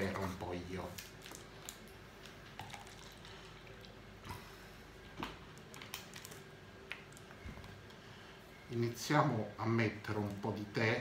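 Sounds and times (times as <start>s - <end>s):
person drinking water: 2.2s - 5.6s.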